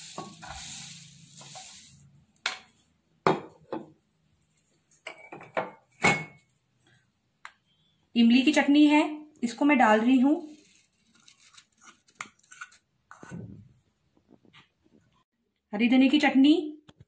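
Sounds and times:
puffed rice poured into bowl: 0.0s - 2.1s.

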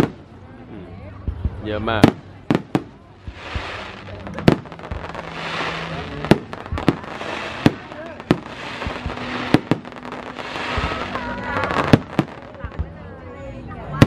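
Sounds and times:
fireworks bangs: 0.0s - 0.3s, 1.9s - 13.0s
fireworks crackling hiss: 2.0s - 13.0s.

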